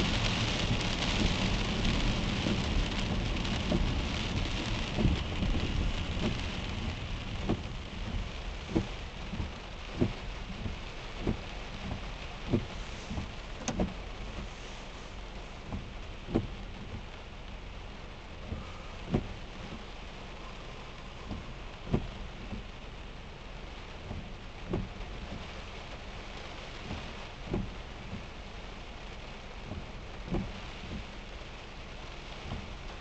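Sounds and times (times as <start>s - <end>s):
heavy rain and tyre spray: 0.0s - 33.0s
windshield wipers knocking: 0.1s - 14.5s, 15.6s - 17.1s, 18.4s - 20.1s, 20.7s - 22.7s, 24.0s - 25.5s, 26.8s - 28.3s, 29.6s - 31.2s, 32.4s - 32.7s.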